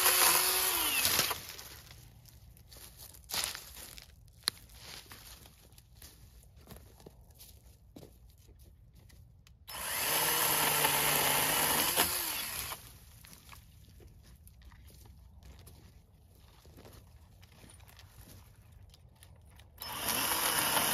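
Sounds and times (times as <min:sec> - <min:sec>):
chainsaw cutting tree limb: 0:00.0 - 0:01.7, 0:09.7 - 0:13.0, 0:19.8 - 0:20.9.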